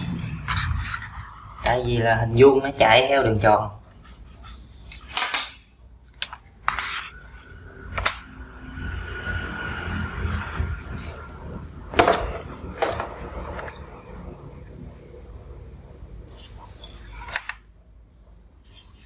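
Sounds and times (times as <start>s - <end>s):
ruler scraping over sheet: 0.0s - 1.7s, 6.6s - 8.2s.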